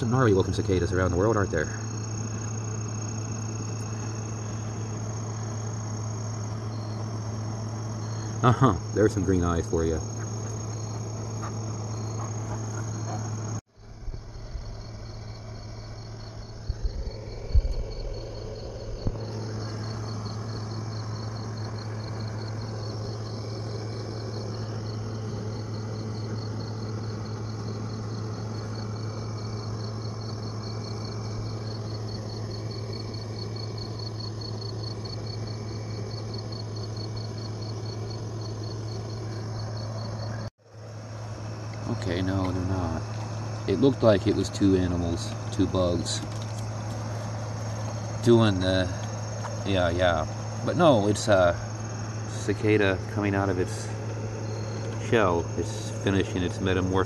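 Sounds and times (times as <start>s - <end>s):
crickets chirping: 0.0s - 57.0s
steady low hum: 0.0s - 57.0s.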